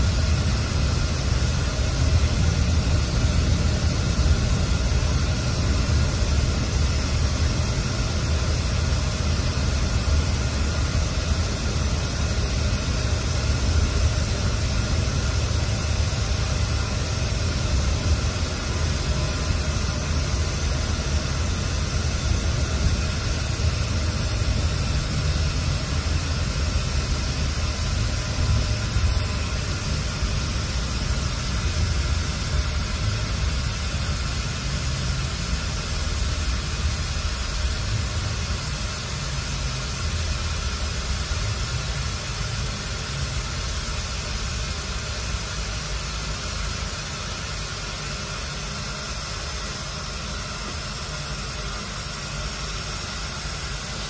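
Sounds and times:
engine and road rumble: 0:00.0 - 0:45.6
air conditioning hissing: 0:00.0 - 0:54.0.

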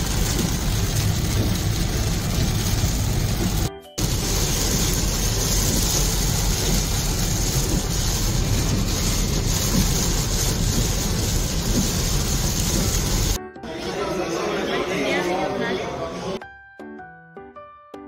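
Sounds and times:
rain hissing: 0:00.0 - 0:13.4
road and engine rumble: 0:00.0 - 0:13.4.

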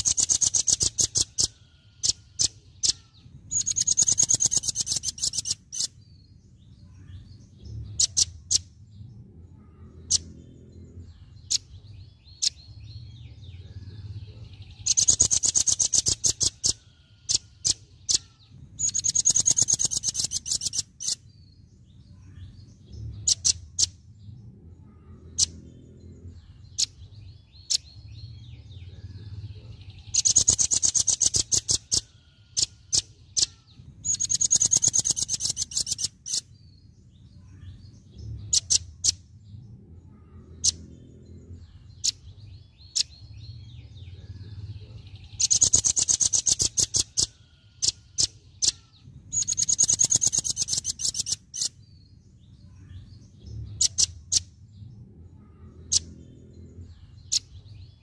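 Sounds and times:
bird rattling song bursts: 0:00.0 - 0:06.0, 0:14.8 - 0:21.2, 0:30.1 - 0:36.5, 0:45.4 - 0:51.8.

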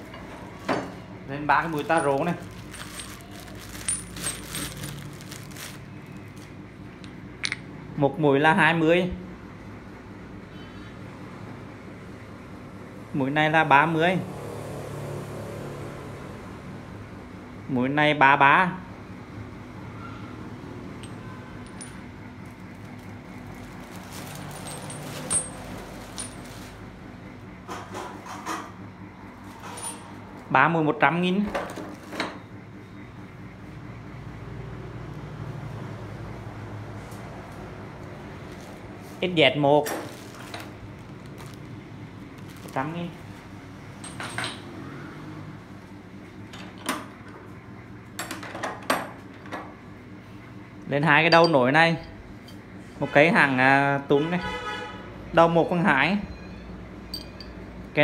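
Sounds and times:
steel taps clinking: 0:07.0 - 0:07.7, 0:57.1 - 0:57.6.

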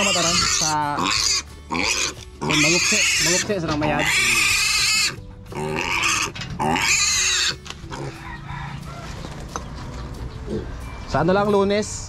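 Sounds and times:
piglet squealing: 0:00.0 - 0:08.2.

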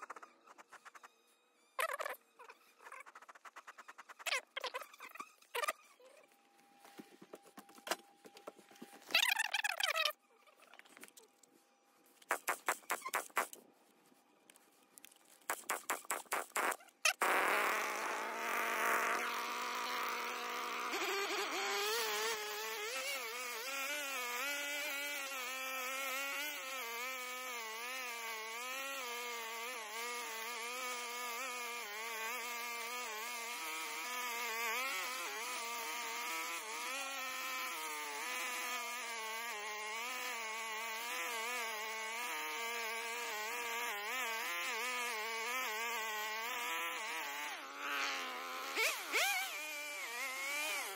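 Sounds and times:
brush cutter engine: 0:15.2 - 0:50.9.

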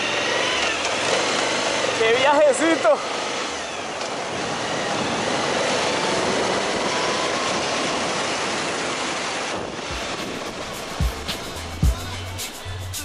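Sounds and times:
wind rushing over microphone: 0:03.0 - 0:12.6.

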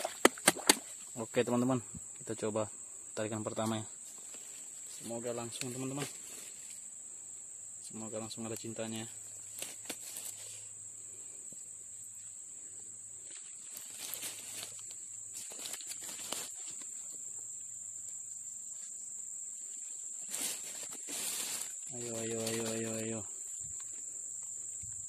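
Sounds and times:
high-pitched insect chorus: 0:00.0 - 0:25.0
dry leaves rustling: 0:04.2 - 0:06.8, 0:09.4 - 0:10.7, 0:13.2 - 0:17.1, 0:20.0 - 0:23.2.

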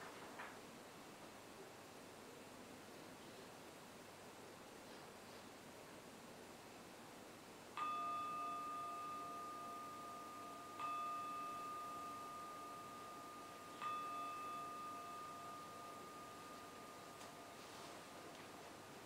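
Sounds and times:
meditation bell ringing: 0:07.8 - 0:19.0.

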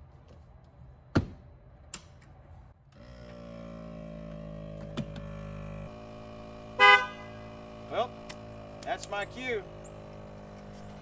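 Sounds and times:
air compressor humming: 0:02.9 - 0:11.0.

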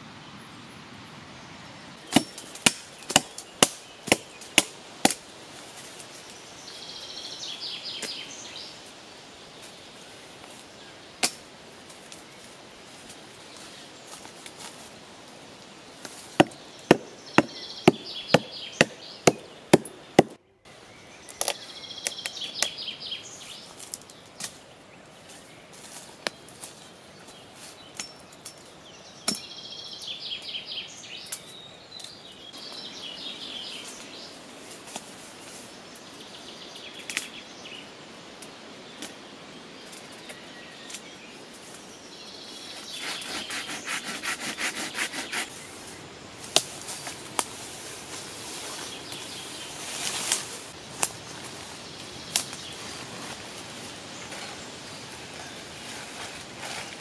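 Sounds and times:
birds singing: 0:00.0 - 0:14.9, 0:15.5 - 0:57.0
hatchet chopping into tree trunk: 0:02.1 - 0:05.2, 0:16.4 - 0:20.4.

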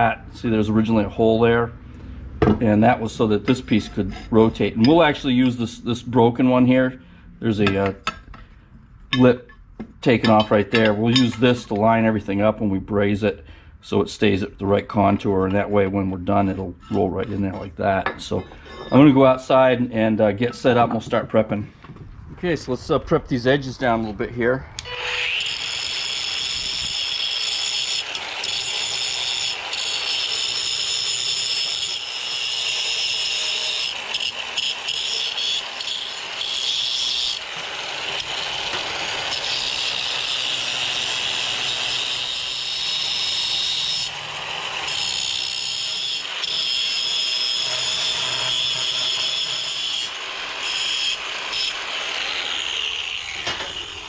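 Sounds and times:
angle grinder whining: 0:23.9 - 0:54.0.

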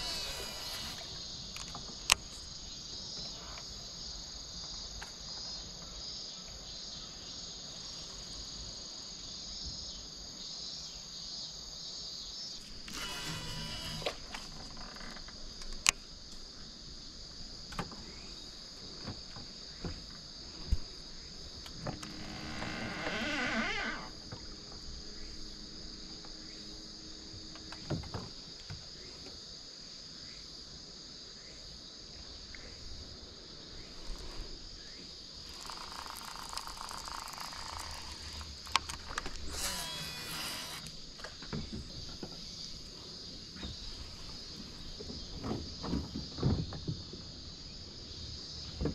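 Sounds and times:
insects shrilling: 0:00.0 - 0:01.8, 0:12.6 - 0:15.2, 0:22.0 - 0:24.3, 0:35.3 - 0:41.0
brief whirring: 0:39.4 - 0:40.9.

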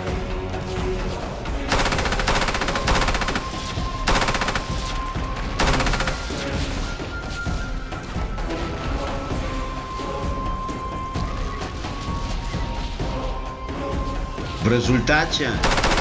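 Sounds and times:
background music: 0:00.0 - 0:16.0
machine gun bursts: 0:01.7 - 0:04.9, 0:05.6 - 0:06.4, 0:15.6 - 0:16.0.

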